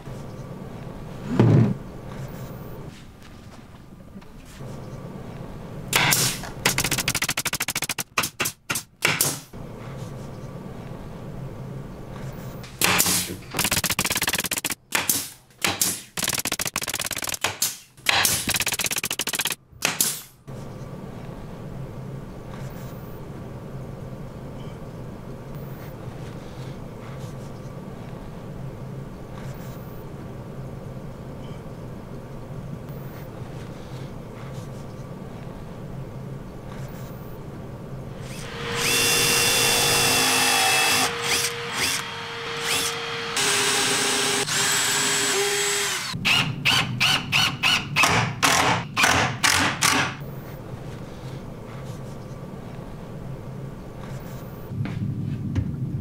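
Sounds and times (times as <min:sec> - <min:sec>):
pneumatic nailer firing into plywood: 0:06.0 - 0:09.5, 0:12.8 - 0:20.4, 0:38.4 - 0:50.2
steady low hum: 0:20.4 - 0:45.3, 0:50.2 - 0:56.0.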